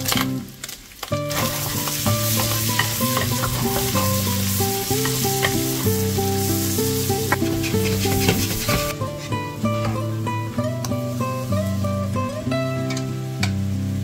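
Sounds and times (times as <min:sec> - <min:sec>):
background music: 0:00.0 - 0:14.0
food sizzling in a frying pan: 0:00.0 - 0:14.0
wooden spoon scraping a pan: 0:01.3 - 0:10.0.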